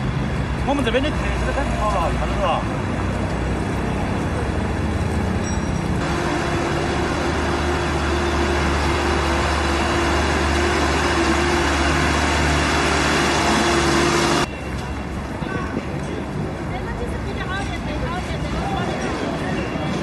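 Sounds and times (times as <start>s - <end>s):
truck engine humming: 0.0s - 15.4s
busy street traffic: 0.0s - 20.0s.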